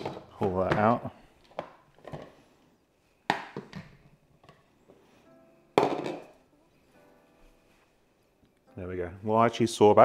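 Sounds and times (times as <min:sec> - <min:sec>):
quiet background music: 0:00.0 - 0:10.0
plastic container knocks: 0:05.8 - 0:06.3.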